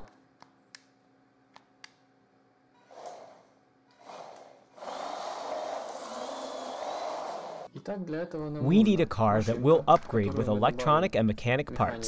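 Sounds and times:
toy car electric motor whining: 0:02.8 - 0:07.7.

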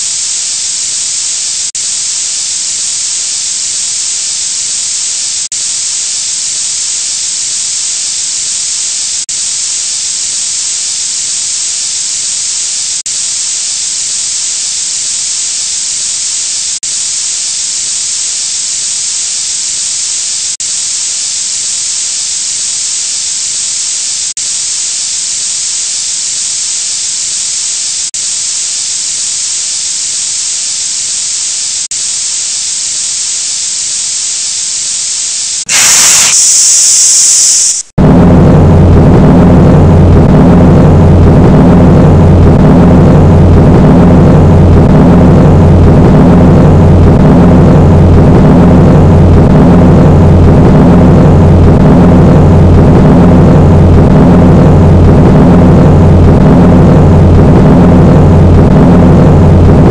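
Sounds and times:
high-pressure water spray hissing: 0:00.0 - 0:37.9.

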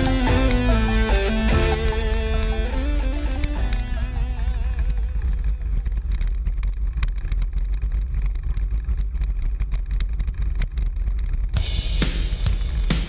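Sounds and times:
guitar music: 0:00.0 - 0:05.8
bike rattling on rough dirt: 0:03.8 - 0:11.6.

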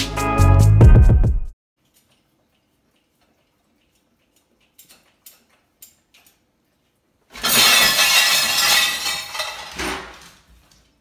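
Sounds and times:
crash and clatter of plates: 0:07.3 - 0:10.4.

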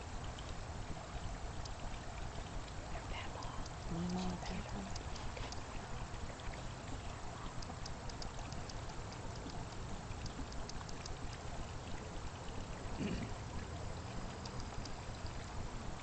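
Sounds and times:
fountain water splashing: 0:00.0 - 0:16.0.

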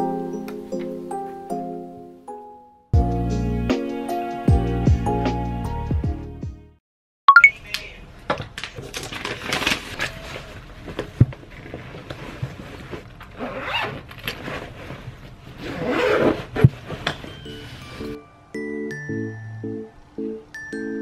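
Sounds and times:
fabric bag rustling and scraping: 0:09.7 - 0:17.9.

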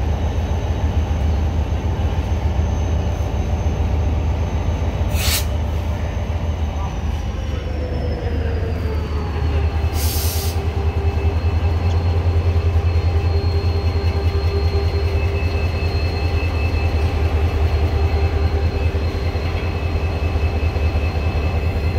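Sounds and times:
locomotive idling rumble: 0:00.0 - 0:21.9
short hiss: 0:05.1 - 0:05.6.

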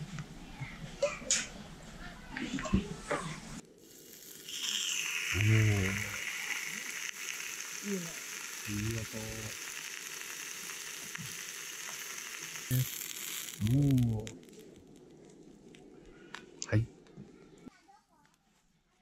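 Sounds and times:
steak sizzling in skillet: 0:03.6 - 0:15.1
low voice sounds: 0:05.4 - 0:06.3, 0:08.7 - 0:09.5, 0:13.6 - 0:14.3.

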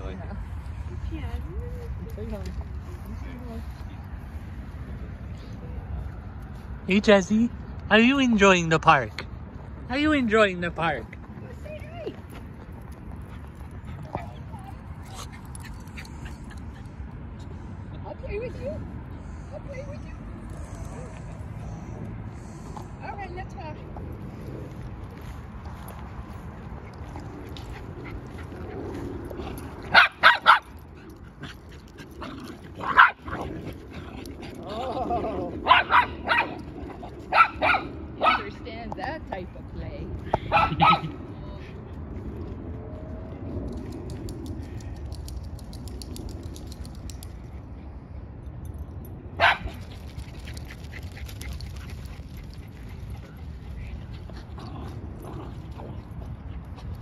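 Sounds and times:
dog barking: 0:29.9 - 0:30.7, 0:35.7 - 0:36.6, 0:37.3 - 0:38.5, 0:40.5 - 0:41.2, 0:49.4 - 0:49.7.

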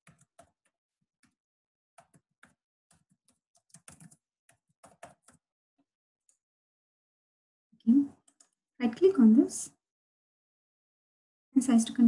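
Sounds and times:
faint keyboard typing: 0:00.0 - 0:01.4, 0:02.0 - 0:05.4, 0:08.0 - 0:08.6.

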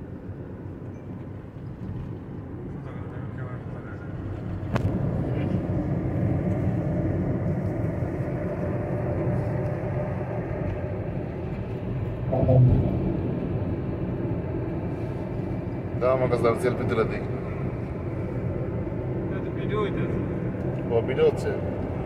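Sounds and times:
car cabin road rumble: 0:01.7 - 0:22.0
tone-like swell: 0:12.3 - 0:14.6.

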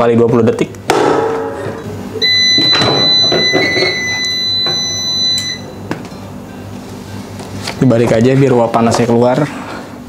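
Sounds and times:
high-pitched timer buzzer: 0:02.2 - 0:05.8.

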